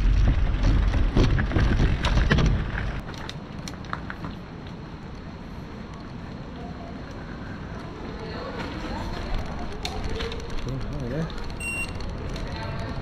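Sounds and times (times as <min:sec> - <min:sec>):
bike rattling and knocking: 0:00.0 - 0:04.5, 0:08.6 - 0:13.0.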